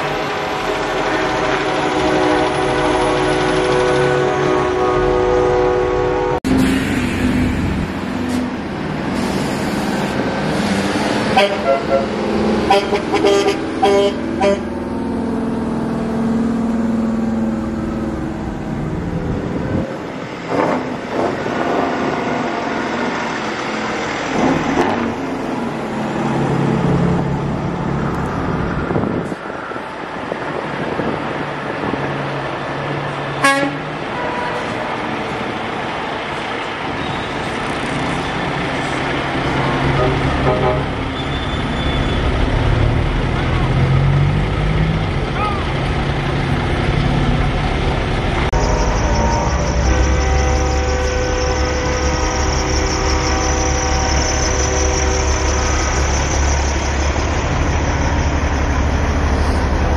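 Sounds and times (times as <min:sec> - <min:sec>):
truck horns honking: 0:00.0 - 0:07.6, 0:11.2 - 0:14.8, 0:33.4 - 0:35.0, 0:39.6 - 0:42.4, 0:48.5 - 0:57.1
trucks diesel engines passing: 0:00.0 - 0:59.9.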